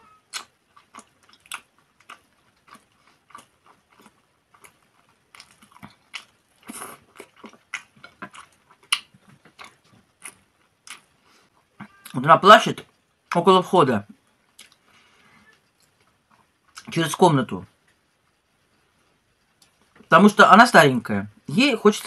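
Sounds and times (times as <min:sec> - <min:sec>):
small mouth clicks: 0:00.3 - 0:04.8, 0:14.5 - 0:14.8
wet chewing mouth sounds: 0:00.3 - 0:11.2.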